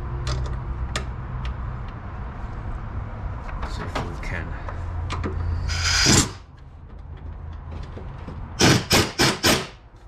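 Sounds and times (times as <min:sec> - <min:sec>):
pneumatic air ratchet bursts: 0:05.5 - 0:06.5, 0:08.6 - 0:09.8.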